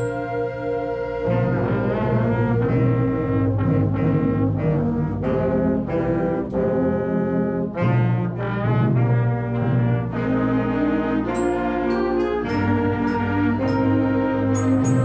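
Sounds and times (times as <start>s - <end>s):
concert band playing: 7.8s - 15.0s.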